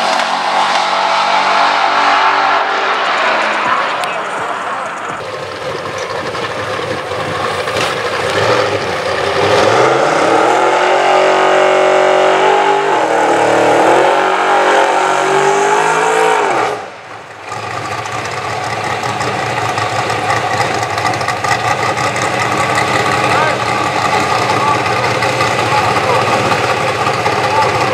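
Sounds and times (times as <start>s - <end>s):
drag car engine revving: 0.0s - 27.9s
rough low engine sound: 0.0s - 27.9s.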